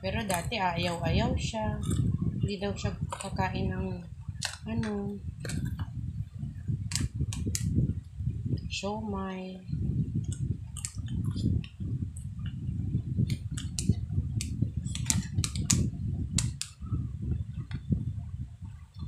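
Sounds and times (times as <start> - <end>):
mushy chewing: 0.2 - 2.1, 2.8 - 3.5, 4.4 - 5.9, 10.3 - 11.6, 13.2 - 15.8
wet mouth clicks and smacks: 1.8 - 2.1, 3.1 - 3.4, 10.2 - 11.6, 13.2 - 15.8.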